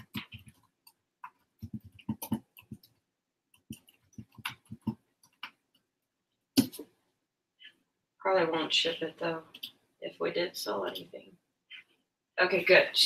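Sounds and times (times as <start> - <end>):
keyboard typing: 0.0 - 5.6
mouse clicking: 3.6 - 5.6.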